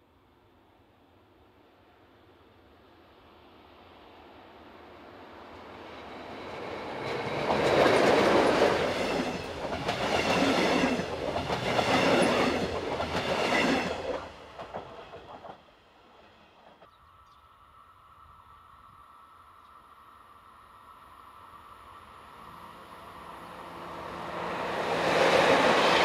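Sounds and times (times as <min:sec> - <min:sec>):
train passing at speed: 0:00.1 - 0:26.0
rhythmic clatter of train wheels: 0:01.1 - 0:17.0.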